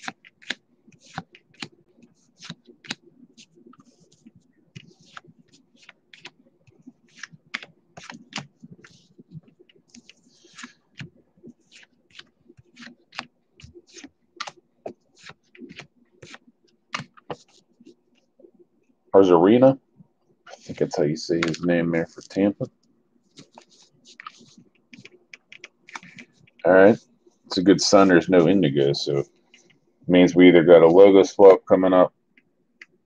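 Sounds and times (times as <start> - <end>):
cards clicking and sliding: 0.0 - 17.6, 20.5 - 22.3, 23.3 - 26.6.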